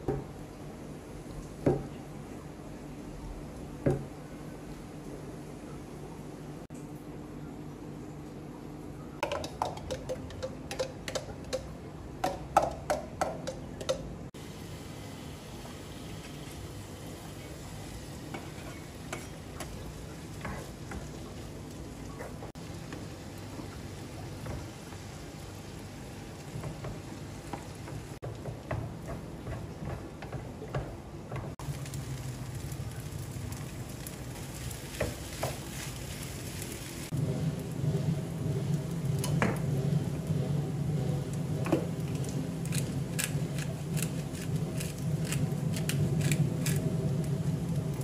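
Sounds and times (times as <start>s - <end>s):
food sizzling in a pan: 14.4s - 28.9s, 31.6s - 40.9s
sharp crackles: 31.6s - 37.1s
steady low hum: 35.4s - 48.0s.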